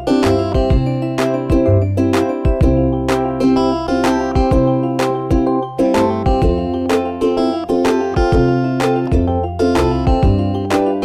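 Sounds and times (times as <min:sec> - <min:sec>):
held pitched notes: 0:00.0 - 0:11.0.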